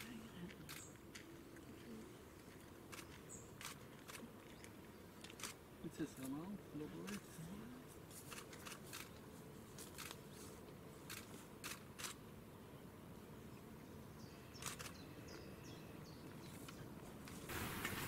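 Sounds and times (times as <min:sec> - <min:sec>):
camera shutters clicking: 0:02.9 - 0:04.2, 0:05.2 - 0:05.6, 0:08.3 - 0:09.1, 0:11.1 - 0:12.2, 0:14.6 - 0:15.0.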